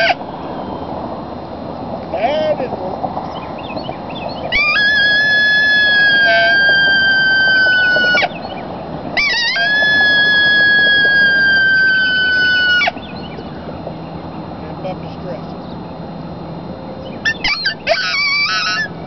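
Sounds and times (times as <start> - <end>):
coyote call howls: 0.0 - 1.2, 4.2 - 13.7, 16.7 - 19.0.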